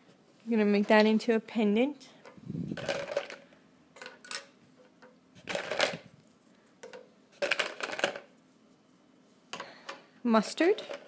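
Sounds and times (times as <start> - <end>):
plastic beads clattering: 2.7 - 3.4, 5.4 - 6.1, 6.8 - 8.3.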